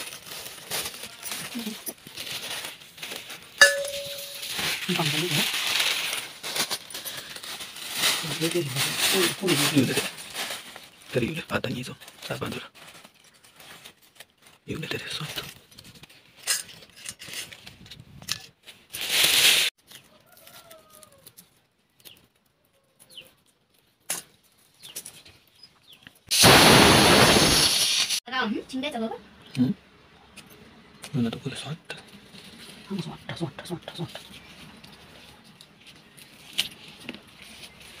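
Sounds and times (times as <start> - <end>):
plastic bag rustling: 0.0 - 17.9, 18.6 - 20.1, 34.2 - 38.0
stalks rustling against blade: 1.0 - 7.7.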